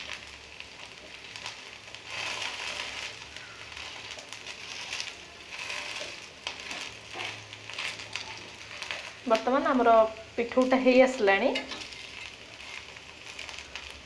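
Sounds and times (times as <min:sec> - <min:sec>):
fritters sizzling in oil: 0:00.0 - 0:14.0
metal spatula scraping pan: 0:03.8 - 0:09.1, 0:11.4 - 0:13.0.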